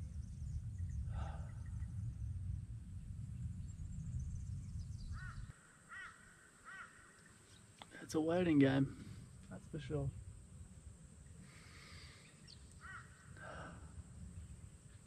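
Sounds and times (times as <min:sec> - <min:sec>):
wind buffeting microphone: 0:00.0 - 0:05.5
bird calling: 0:05.0 - 0:07.8, 0:11.5 - 0:13.7.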